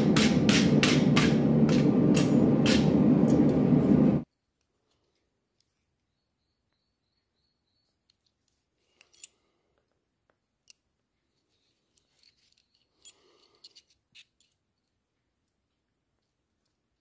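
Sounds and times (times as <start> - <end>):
soft rustle: 11.1 - 14.9.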